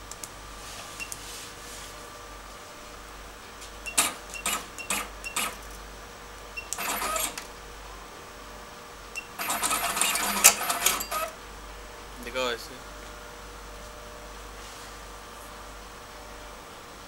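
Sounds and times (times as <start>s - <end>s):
wire cutting machine running: 3.8s - 5.8s, 6.6s - 7.5s, 9.4s - 11.4s
keypad clicks and beeps: 3.9s - 5.6s.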